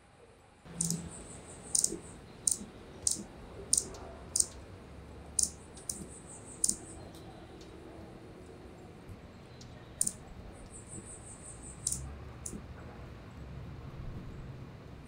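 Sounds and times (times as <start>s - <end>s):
hummingbird chip calls: 0.7s - 4.6s, 5.3s - 7.2s, 9.6s - 12.6s.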